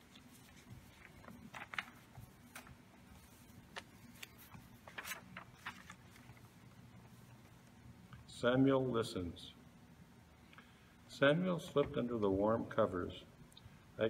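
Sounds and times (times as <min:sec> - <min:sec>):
paper rustling: 0:00.0 - 0:07.7
low steady hum: 0:00.0 - 0:14.0.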